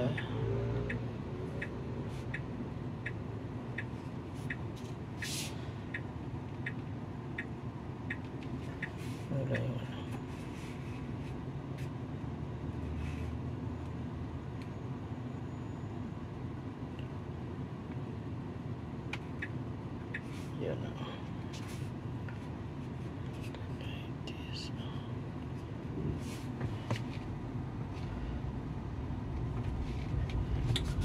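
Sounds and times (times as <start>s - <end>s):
turn signal ticking: 0.0s - 10.2s, 18.7s - 22.8s
cabin road noise: 0.0s - 31.0s.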